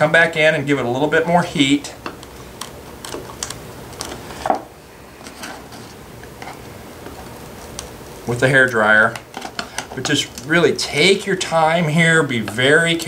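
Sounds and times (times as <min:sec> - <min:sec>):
glue crackling as cone is pried: 0:02.0 - 0:04.5.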